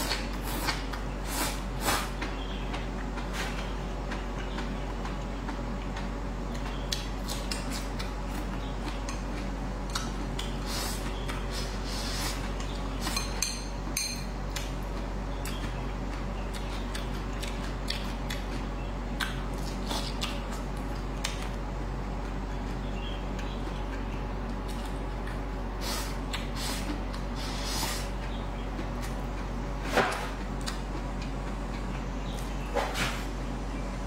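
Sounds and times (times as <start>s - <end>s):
chewing: 16.5s - 21.5s.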